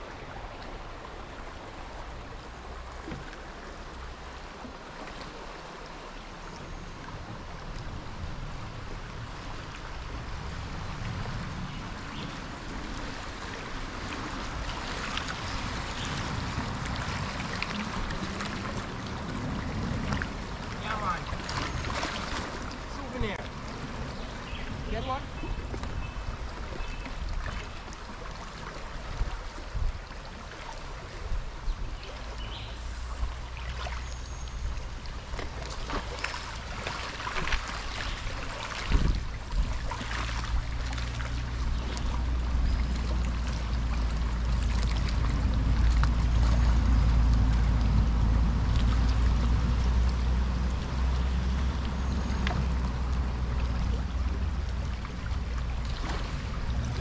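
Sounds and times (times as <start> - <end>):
river water lapping: 0.0 - 57.0
steady low rumble: 7.5 - 27.6, 36.4 - 57.0
small splashes and knocks: 14.2 - 23.8, 33.4 - 34.2, 35.2 - 50.3, 52.3 - 57.0.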